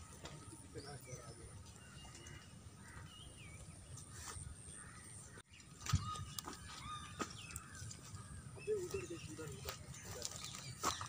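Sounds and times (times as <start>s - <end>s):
faint bird chirps and whistles: 5.6s - 7.9s.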